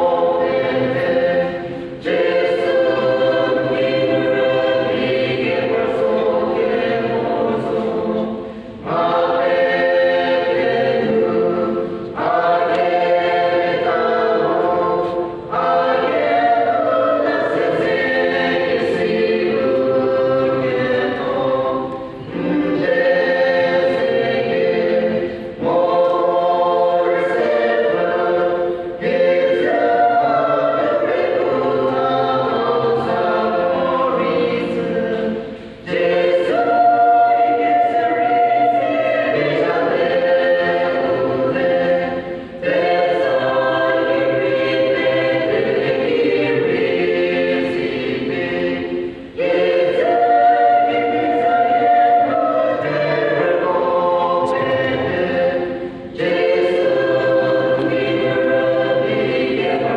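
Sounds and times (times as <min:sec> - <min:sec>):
choir singing gospel song: 0:00.0 - 0:59.9.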